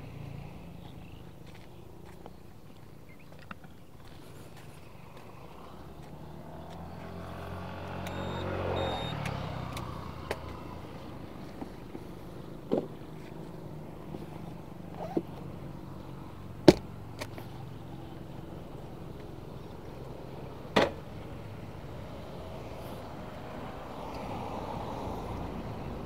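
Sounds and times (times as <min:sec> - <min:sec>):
motorcycle passing: 0:04.3 - 0:16.6.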